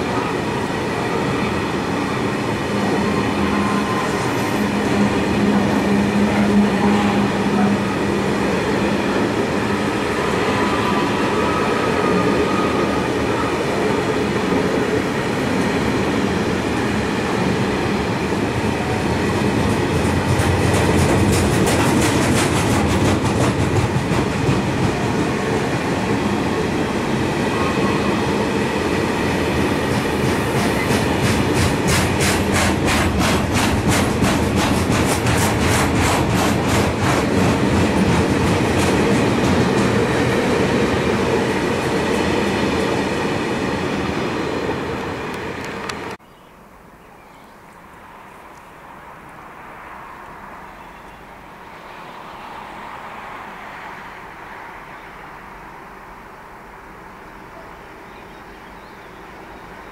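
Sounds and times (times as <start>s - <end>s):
freight train wheels rumbling: 0.0s - 46.2s
wheels clicking over rail joints: 19.6s - 25.2s, 29.8s - 40.3s.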